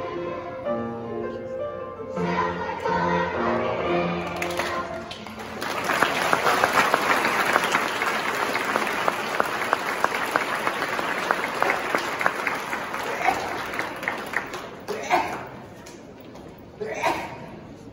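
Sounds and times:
crowd applauding: 4.4s - 15.0s.

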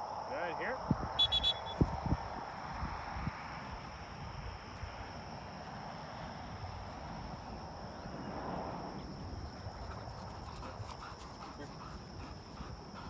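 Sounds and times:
high insect drone: 0.0s - 13.0s
wind rumble on microphone: 0.8s - 11.1s.

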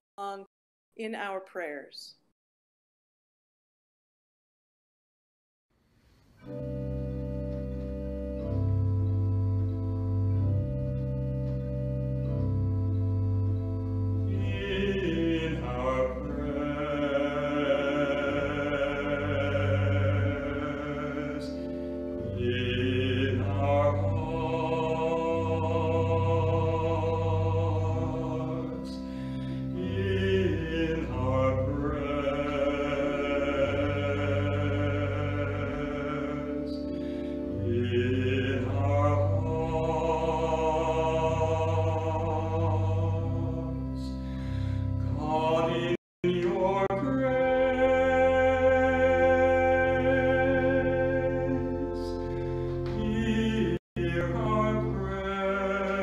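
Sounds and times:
held keyboard chords: 6.4s - 56.0s
man singing a slow prayer song: 14.3s - 21.7s, 22.3s - 37.0s, 37.6s - 44.2s, 45.1s - 52.3s, 52.9s - 56.0s.

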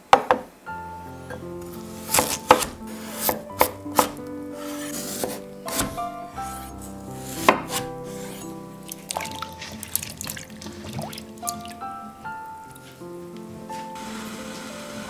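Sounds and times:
soft music with held notes: 0.6s - 15.0s
knife cutting potatoes on wooden board: 1.6s - 9.8s.

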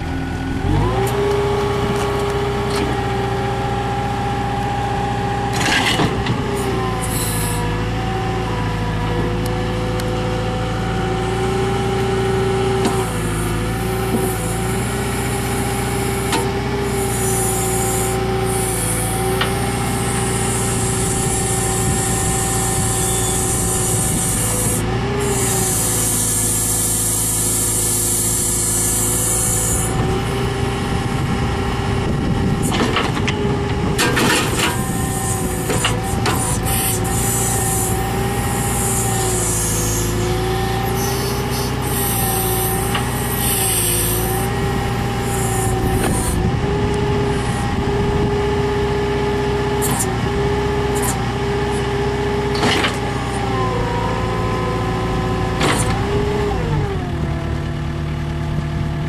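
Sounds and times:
diesel engine running: 0.0s - 59.0s
hydraulic hiss: 34.9s - 44.5s.

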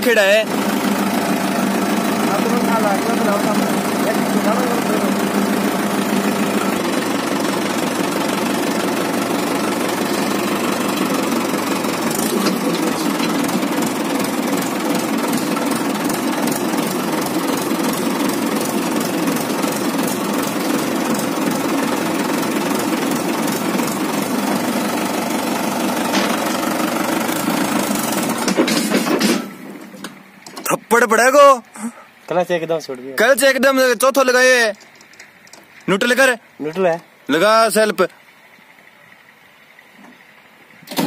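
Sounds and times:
tractor diesel engine running: 0.0s - 41.0s.

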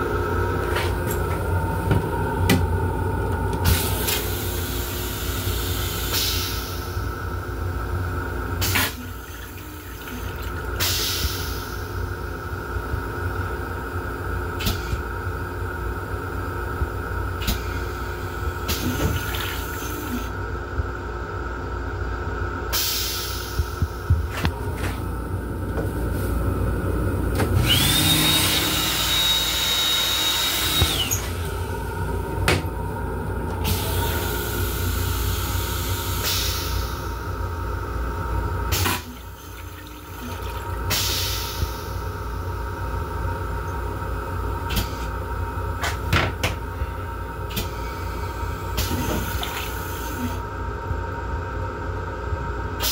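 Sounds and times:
toilet flush water hissing: 3.6s - 7.4s, 8.1s - 12.7s, 17.3s - 20.4s, 27.6s - 37.4s, 38.5s - 45.8s
hiss: 4.3s - 7.0s.

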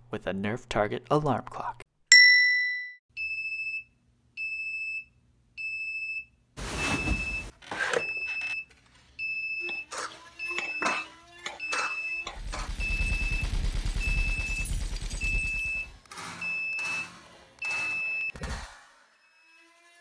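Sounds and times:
alarm clock beeping: 9.2s - 14.6s, 15.2s - 18.3s.

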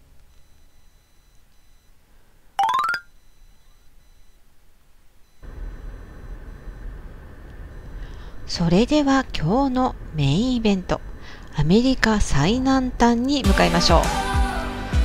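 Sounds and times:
bright rising chime: 2.6s - 3.0s.

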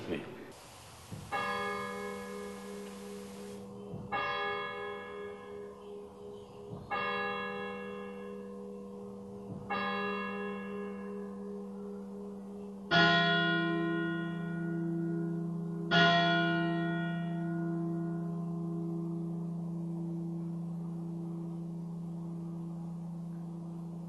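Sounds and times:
steady hum: 0.5s - 3.6s
church bell tolling: 1.3s - 24.0s.

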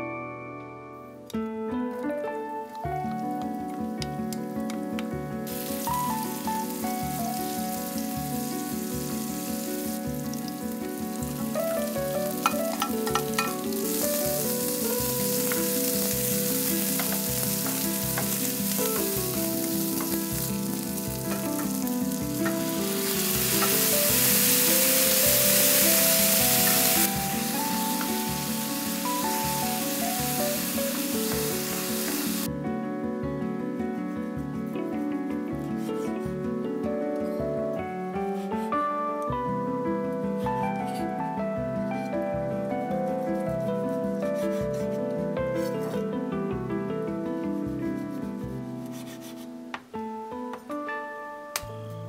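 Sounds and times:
onions sizzling in frying pan: 5.5s - 32.5s.

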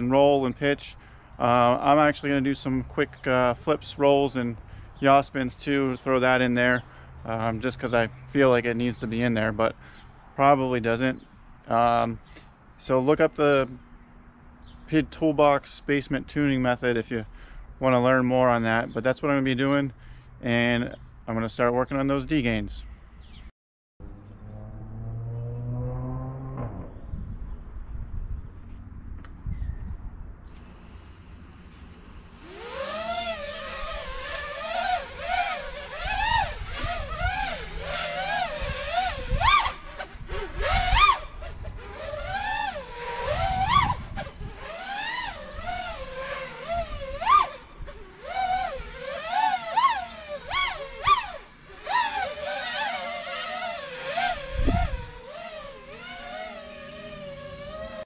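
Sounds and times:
quadcopter motors whining: 30.5s - 58.0s.

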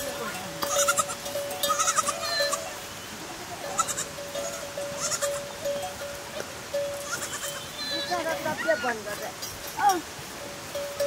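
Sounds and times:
goats bleating: 0.0s - 5.5s, 7.0s - 9.0s.

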